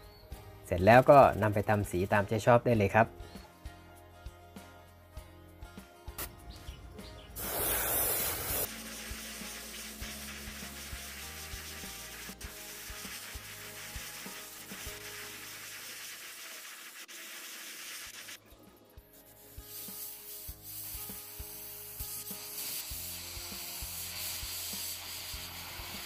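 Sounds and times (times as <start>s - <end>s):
airbrush spraying hiss: 7.4s - 18.4s, 19.1s - 26.0s.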